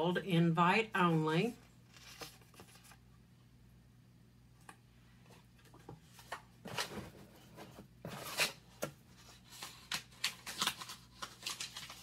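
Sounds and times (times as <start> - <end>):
packing paper rustling: 1.9 - 3.0, 6.1 - 12.0.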